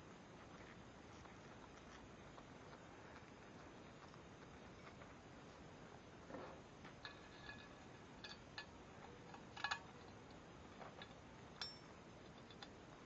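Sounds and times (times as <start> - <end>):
metal rods clicking on bracket: 7.0 - 10.2.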